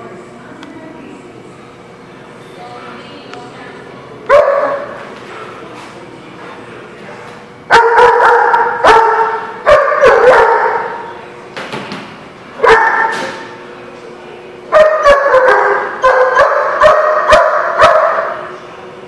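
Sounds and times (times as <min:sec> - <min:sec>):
dog barking with echo: 0:04.3 - 0:05.0, 0:07.7 - 0:11.0, 0:12.6 - 0:13.2, 0:14.7 - 0:18.5.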